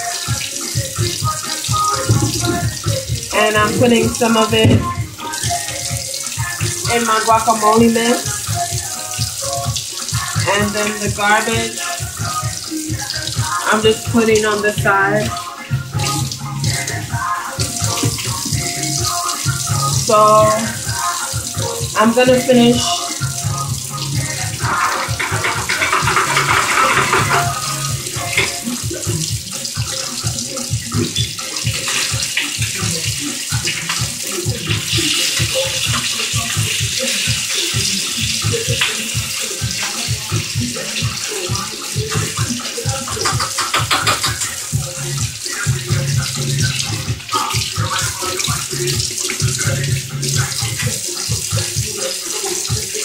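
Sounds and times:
sponge washing dishes: 0.0 - 53.0
tap running into sink: 0.3 - 15.4, 24.2 - 53.0.

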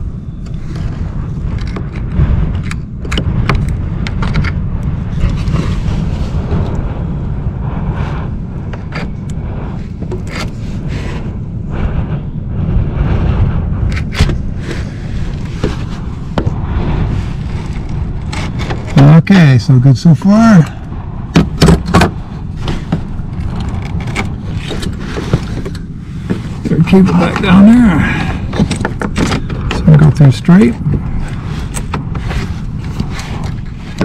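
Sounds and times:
steady low rumble: 0.0 - 34.0
metal cable scraping and clicking: 10.0 - 10.7, 17.3 - 19.0, 22.6 - 27.6, 31.1 - 34.0.

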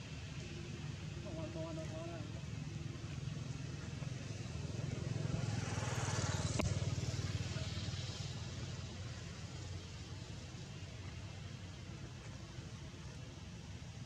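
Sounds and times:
vehicle engine passing by: 2.9 - 10.0.

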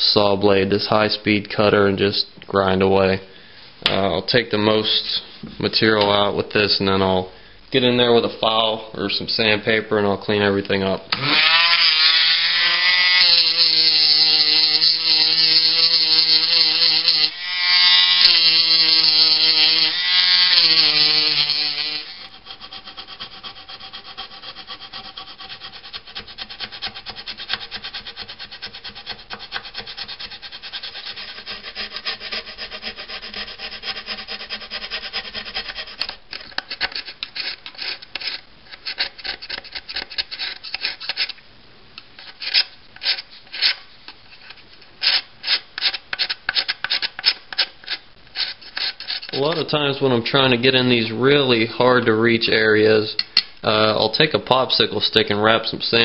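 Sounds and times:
rotary tool grinding: 11.2 - 41.4, 42.2 - 49.6
needle file rasping: 18.2 - 41.4, 44.4 - 49.6.

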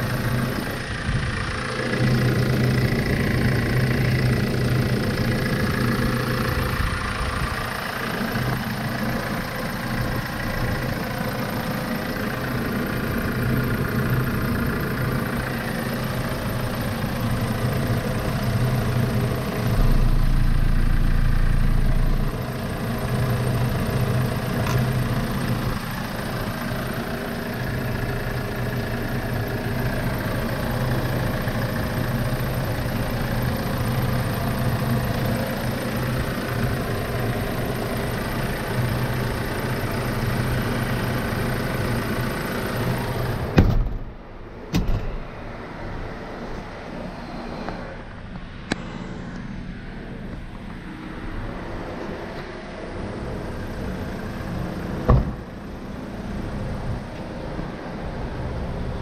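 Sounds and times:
diesel engine idling: 0.0 - 47.2, 47.9 - 59.0
loud low rumble: 15.3 - 25.7.

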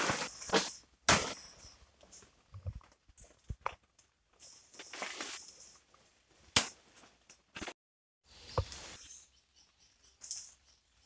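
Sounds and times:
rustling leaves: 4.6 - 5.9.

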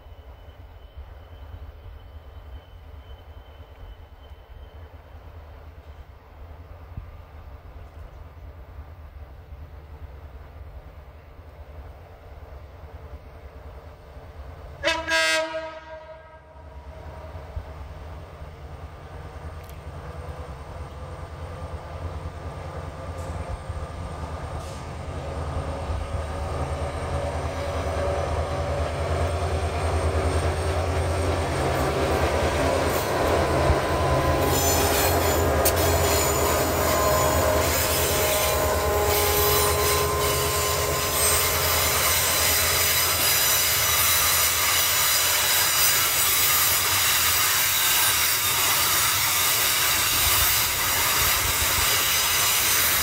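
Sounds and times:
train wheels squealing: 0.0 - 6.3, 20.4 - 53.0
freight train rumble: 0.0 - 53.0.

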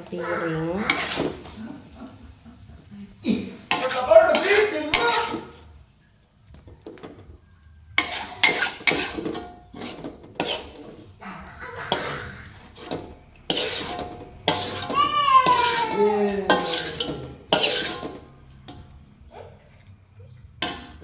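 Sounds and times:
metal spatula scraping a wok: 0.0 - 1.6, 3.4 - 5.7, 7.9 - 21.0
high wavering voice-like cry: 11.2 - 12.7, 14.9 - 16.5.

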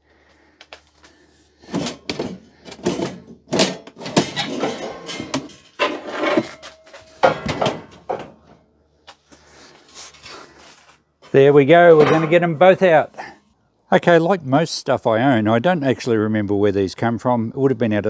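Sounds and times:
metal pipes clanking and scraping: 1.6 - 8.6, 9.9 - 13.3.

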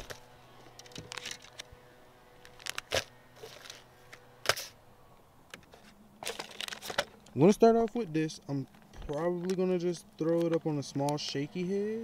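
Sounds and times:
plastic packaging crinkling: 2.4 - 3.9, 6.2 - 7.3.

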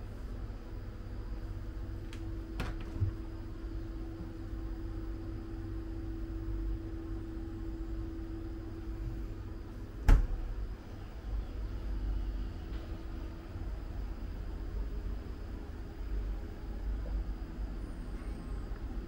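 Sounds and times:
steady low hum: 0.0 - 19.0
fridge door clicking open: 2.1 - 3.2, 10.0 - 10.4
fridge door shutting thump: 2.5 - 3.3, 10.0 - 10.5.

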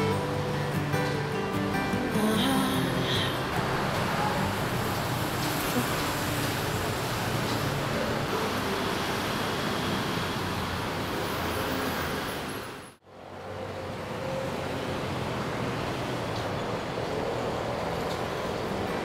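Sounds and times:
steady road traffic: 0.0 - 19.0.

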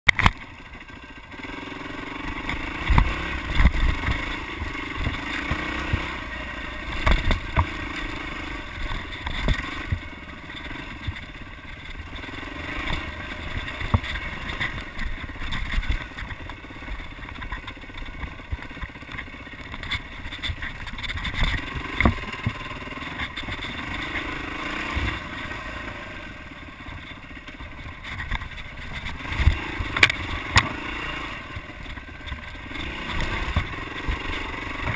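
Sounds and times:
dirt bike engine revving: 0.2 - 34.9
bike thumping over bumps: 2.3 - 25.8.

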